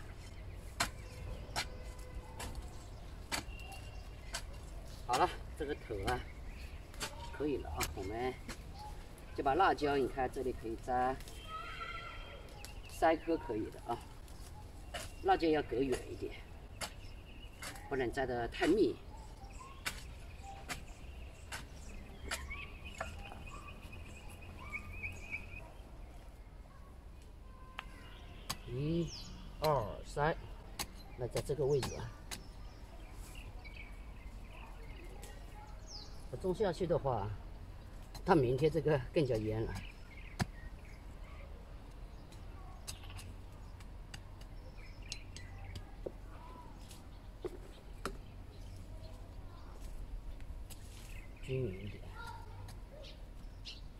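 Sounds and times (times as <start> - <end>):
birds chirping: 0.0 - 53.9
hand hoe knocking in soil: 0.1 - 11.2, 13.5 - 19.0, 19.6 - 23.6, 30.6 - 32.8, 38.0 - 40.7.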